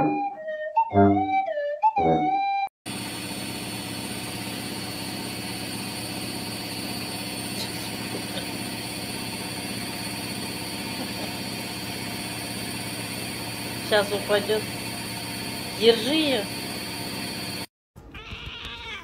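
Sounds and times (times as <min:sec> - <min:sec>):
low machine drone: 0:02.9 - 0:17.7.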